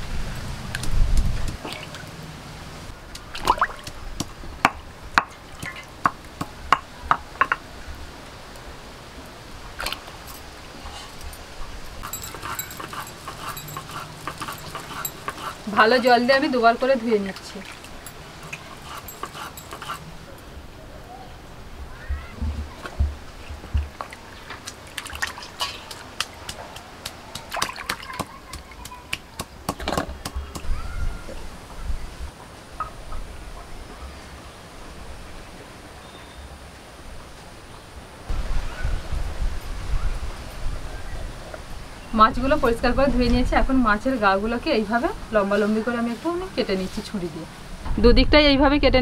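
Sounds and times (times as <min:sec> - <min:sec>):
water drips and splashes: 0:00.4 - 0:19.0, 0:22.2 - 0:29.4
water splashing in bowl: 0:03.2 - 0:04.0, 0:22.7 - 0:29.3.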